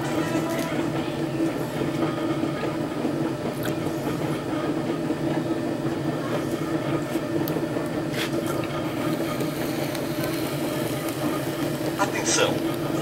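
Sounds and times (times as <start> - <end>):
potter's wheel humming: 0.0 - 13.0.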